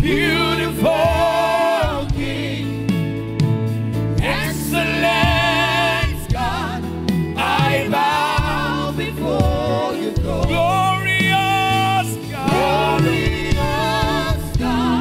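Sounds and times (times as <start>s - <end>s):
man singing with vibrato: 7.6s - 14.5s.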